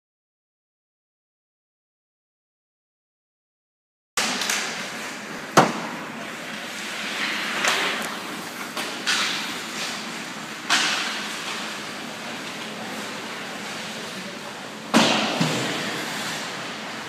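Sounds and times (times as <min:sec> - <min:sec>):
skate blades scraping ice: 0:06.3 - 0:14.0, 0:15.4 - 0:17.0
hockey stick cracking on puck: 0:07.1 - 0:10.1, 0:10.7 - 0:11.9.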